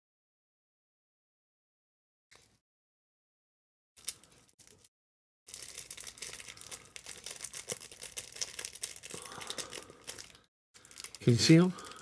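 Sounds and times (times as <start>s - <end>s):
plastic packet crinkling: 4.0s - 4.9s, 5.5s - 12.0s.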